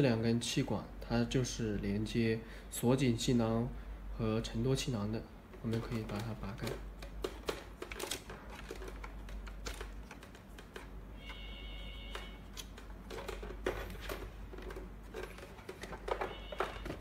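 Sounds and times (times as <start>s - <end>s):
brief high electronic tone: 11.2s - 12.4s.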